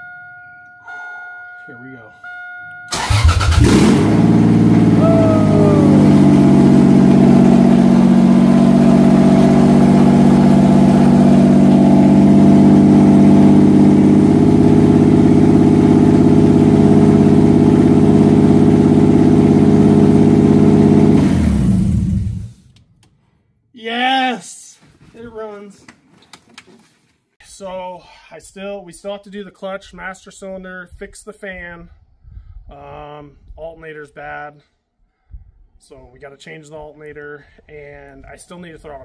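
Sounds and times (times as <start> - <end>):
car engine idling: 2.9 - 22.6
engine running down and stopping: 2.9 - 22.7
short falling whine: 3.6 - 22.4.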